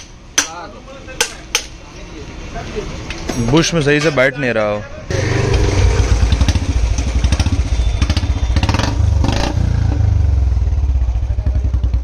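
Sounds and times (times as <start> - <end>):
motorcycle engine revving: 5.1 - 12.0.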